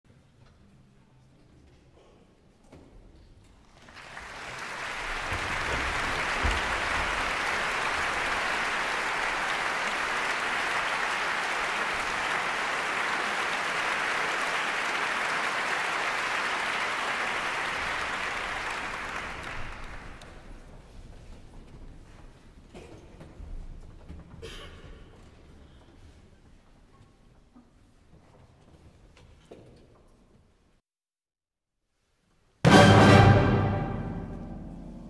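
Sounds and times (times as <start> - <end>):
audience applauding: 3.7 - 20.7.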